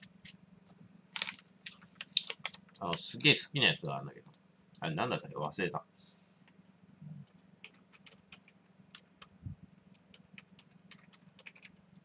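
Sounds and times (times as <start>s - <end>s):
faint low hum: 0.0s - 12.0s
keyboard typing clicks: 10.0s - 11.7s.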